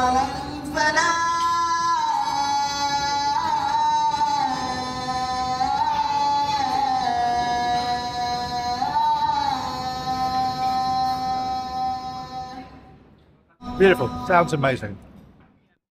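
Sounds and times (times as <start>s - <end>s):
person singing slow doleful song: 0.0s - 12.9s, 13.6s - 14.7s.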